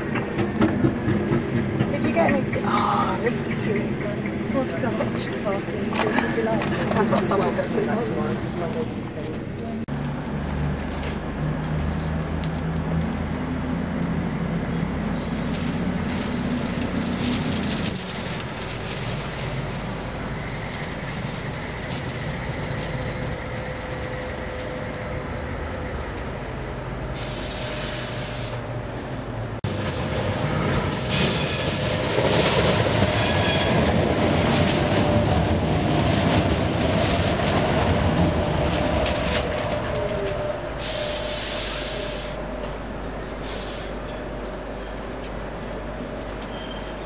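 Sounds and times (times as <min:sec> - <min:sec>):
tram whine: 0:00.0 - 0:47.0
wheels on rail: 0:00.0 - 0:47.0
short hisses: 0:27.2 - 0:28.6, 0:40.8 - 0:42.5, 0:43.3 - 0:44.0.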